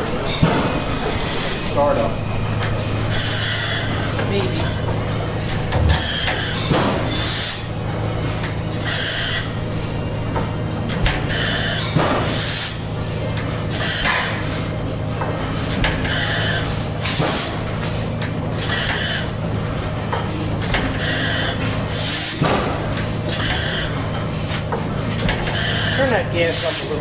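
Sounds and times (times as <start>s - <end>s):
stationary engines droning: 0.0s - 27.0s.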